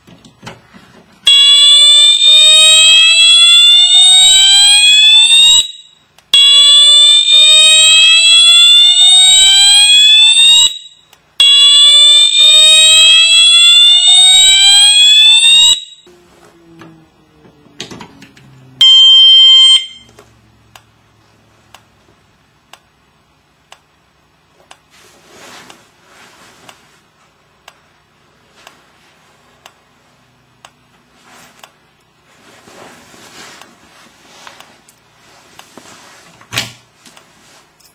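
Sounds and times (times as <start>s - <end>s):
fire alarm horn whooping: 1.3s - 16.2s, 18.8s - 20.1s
short steady beep: 18.8s - 20.2s.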